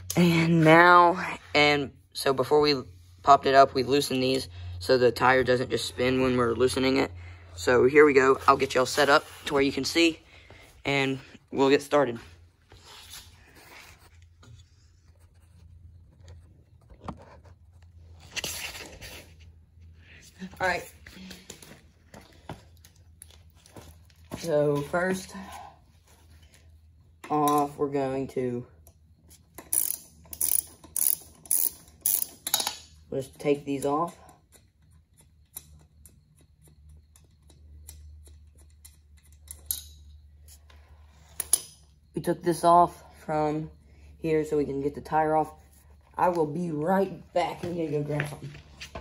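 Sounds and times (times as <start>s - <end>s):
low steady hum: 0.0s - 49.0s
ratchet wrench clicking: 29.6s - 32.8s.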